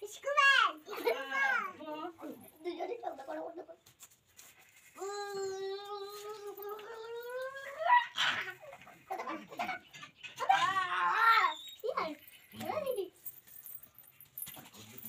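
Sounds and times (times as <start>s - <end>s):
small child crying: 5.0s - 9.4s, 10.4s - 12.0s.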